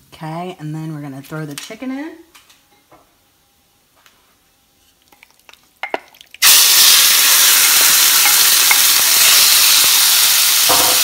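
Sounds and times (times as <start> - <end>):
chicken sizzling in a hot pan: 6.4 - 11.0.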